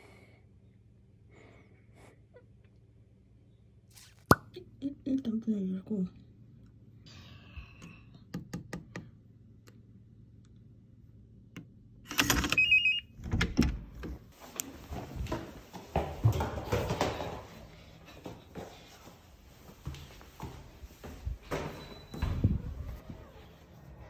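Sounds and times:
door opening: 0:12.1 - 0:14.3, 0:21.4 - 0:23.8
shuffling and footsteps: 0:14.3 - 0:24.0.

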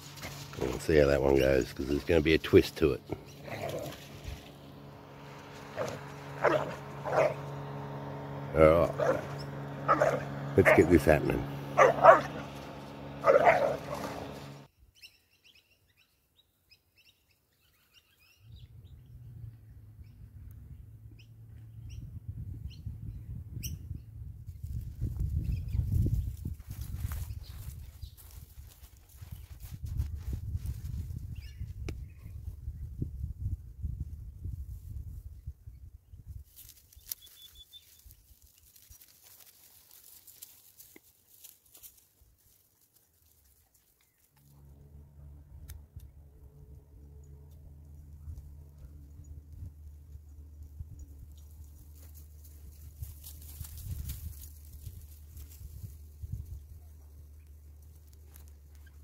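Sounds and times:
dry grass rustling and crackling: 0:00.0 - 0:14.7, 0:24.5 - 0:31.4, 0:36.3 - 0:45.2, 0:47.4 - 0:59.0
dog barking: 0:05.8 - 0:07.4, 0:08.9 - 0:11.0, 0:11.7 - 0:12.6, 0:13.2 - 0:14.4.

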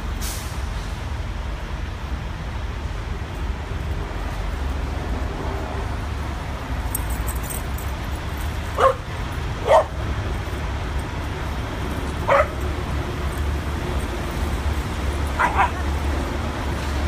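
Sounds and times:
city traffic rumble: 0:00.0 - 0:17.0
dog barking: 0:08.8 - 0:10.0, 0:12.2 - 0:12.6, 0:15.4 - 0:16.0.

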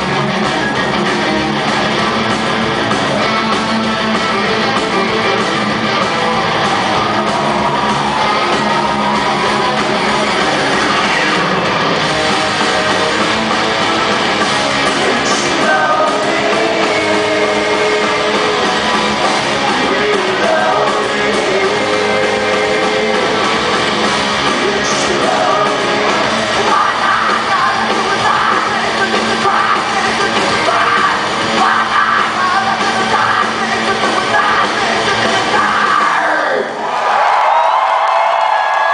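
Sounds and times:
distorted electric guitars: 0:00.0 - 0:36.9
drums: 0:00.0 - 0:38.9
person singing and yelling: 0:14.9 - 0:23.8, 0:24.4 - 0:36.8.

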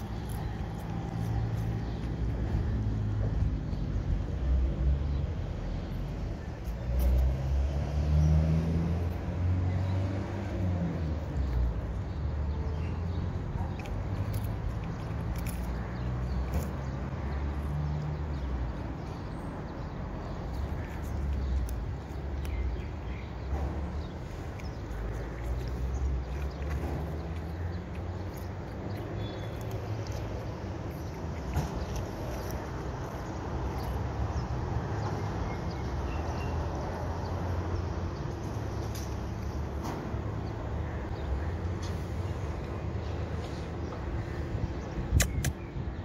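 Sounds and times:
cat chewing crunchy fish: 0:13.6 - 0:16.6, 0:24.2 - 0:34.0.

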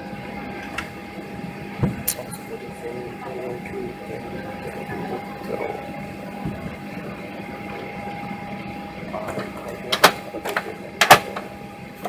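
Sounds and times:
airplane cabin hum: 0:00.0 - 0:12.0
steady tone: 0:00.0 - 0:12.0.

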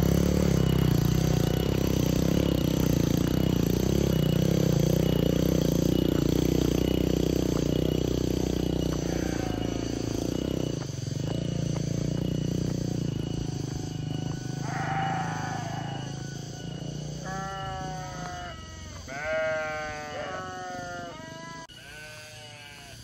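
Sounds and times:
motorcycle engine running: 0:00.0 - 0:20.1
livestock bleating: 0:09.0 - 0:10.0, 0:14.6 - 0:16.1, 0:17.2 - 0:23.0.

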